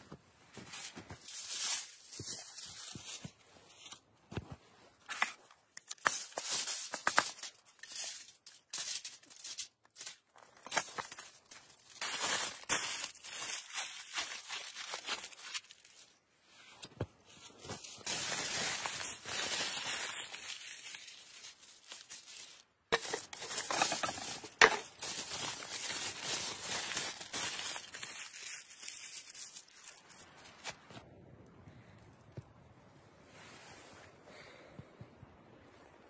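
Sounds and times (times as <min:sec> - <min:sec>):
aluminium foil crinkling: 0:05.7 - 0:16.2, 0:17.4 - 0:30.7.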